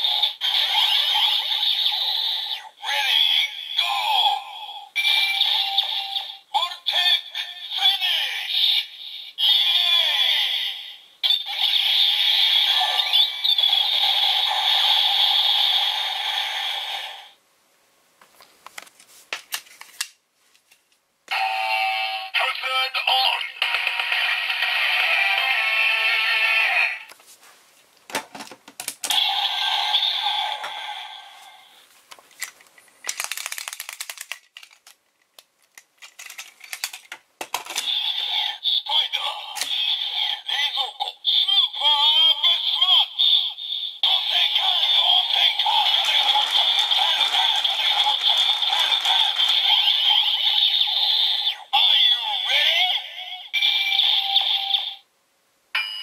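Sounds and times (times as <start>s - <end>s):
toy electronic sound effects: 0.0s - 4.4s, 5.0s - 10.5s, 11.2s - 17.3s, 29.0s - 31.0s, 37.6s - 55.0s
plastic clicks: 32.1s - 37.9s
plastic toys rattling: 32.3s - 38.1s, 45.7s - 50.4s.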